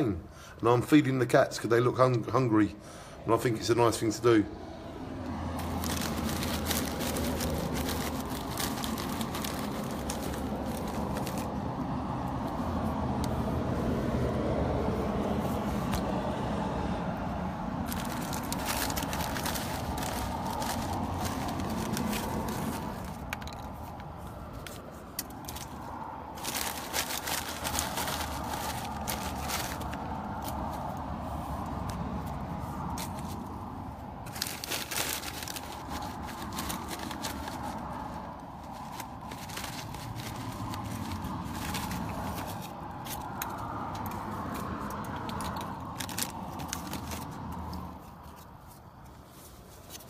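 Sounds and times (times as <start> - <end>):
handling clicks and crackles: 5.2 - 13.5, 17.8 - 50.0
plastic packet crinkling: 5.6 - 11.9, 17.8 - 24.0, 24.6 - 31.0, 34.2 - 47.8.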